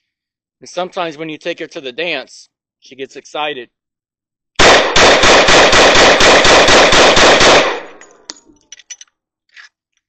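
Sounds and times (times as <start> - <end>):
rapid pistol shots: 4.6 - 8.1
gunshot echo: 4.6 - 8.2.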